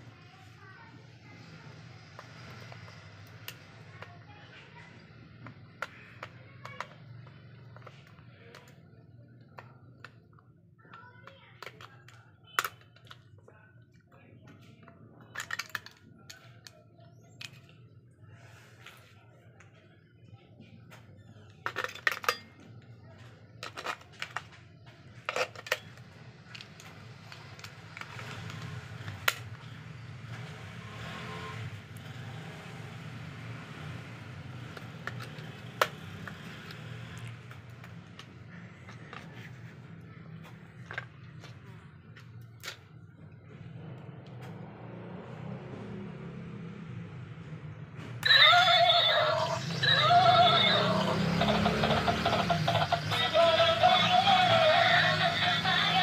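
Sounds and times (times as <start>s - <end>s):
plastic clicks and rattles: 9.4s - 13.5s, 15.2s - 16.8s, 21.6s - 22.7s, 23.5s - 24.6s, 25.2s - 29.7s, 34.6s - 39.6s, 40.4s - 42.8s
plastic toy being handled: 21.6s - 29.7s, 34.5s - 43.0s.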